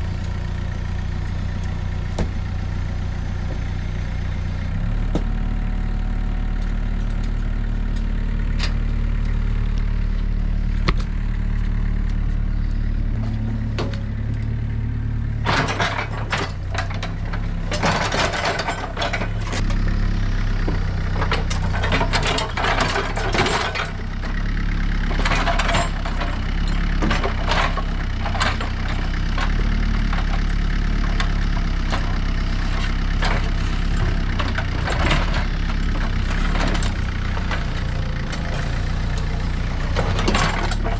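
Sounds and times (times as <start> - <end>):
excavator engine running: 0.0 - 40.9
bucket scraping and clanking: 15.4 - 19.6, 21.1 - 24.0, 25.1 - 32.1, 32.7 - 40.9.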